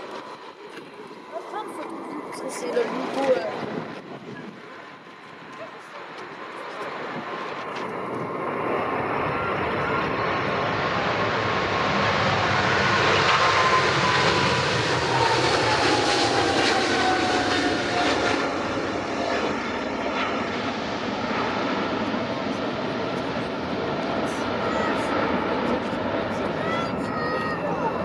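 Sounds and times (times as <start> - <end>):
airliner engine noise: 0.0 - 28.0
jet whine sliding down in pitch: 7.0 - 19.2.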